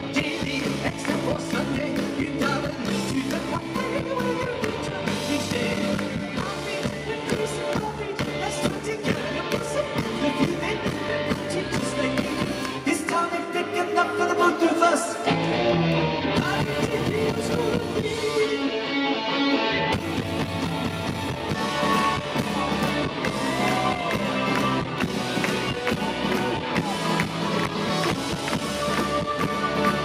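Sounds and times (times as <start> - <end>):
male lead vocal: 0.0 - 15.6, 16.2 - 19.4
guitar: 0.0 - 30.0
live rock band playing: 0.0 - 30.0.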